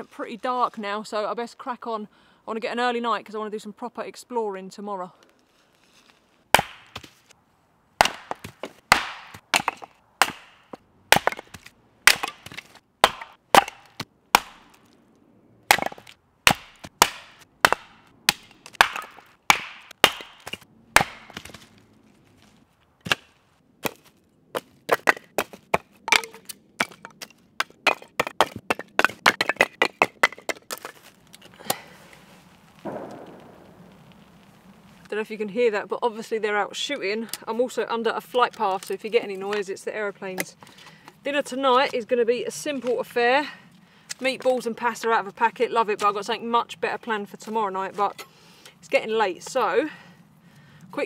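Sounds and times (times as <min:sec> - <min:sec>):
hatchet splitting log: 0:06.5 - 0:07.2, 0:08.0 - 0:15.0, 0:15.7 - 0:21.7, 0:22.4 - 0:31.8.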